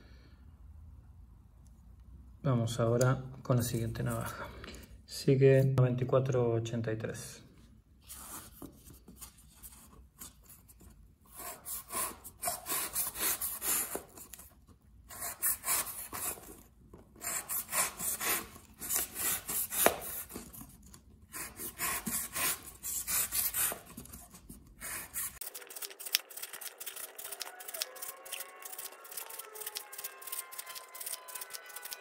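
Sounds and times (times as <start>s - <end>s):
knife slicing cardboard: 17.2s - 25.5s.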